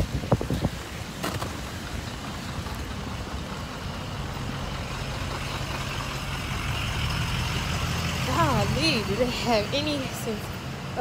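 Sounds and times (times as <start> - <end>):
large vehicle engine running: 0.0 - 11.0.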